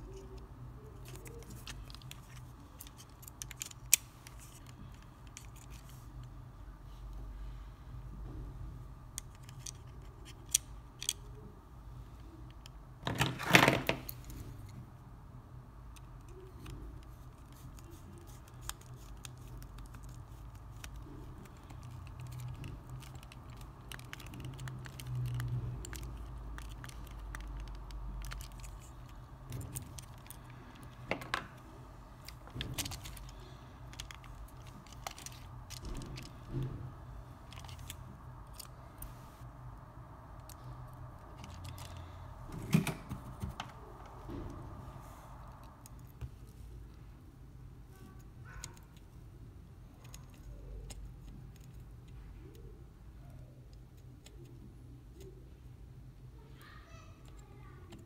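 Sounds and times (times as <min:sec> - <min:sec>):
plastic controller housing clicking: 0:01.1 - 0:05.9.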